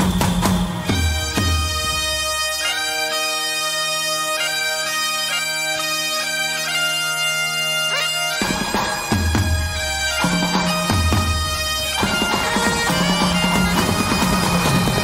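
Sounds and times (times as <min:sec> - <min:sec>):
drums: 0:00.0 - 0:02.8, 0:08.3 - 0:15.0
bagpipes playing over drones: 0:00.0 - 0:15.0.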